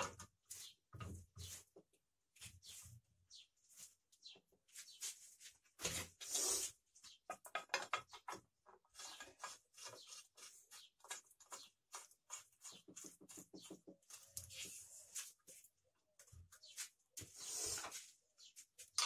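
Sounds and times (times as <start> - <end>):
clicks and scrapes of parts: 5.8 - 14.8.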